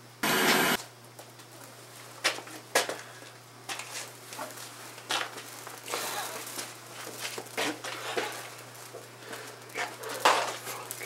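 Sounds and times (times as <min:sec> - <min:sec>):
loud burst of noise: 0:00.0 - 0:00.8
low electrical hum: 0:00.0 - 0:11.0.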